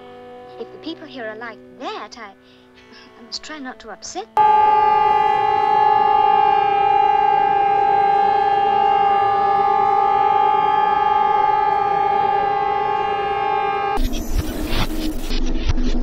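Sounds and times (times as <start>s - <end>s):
siren-like held tone: 4.4s - 15.1s.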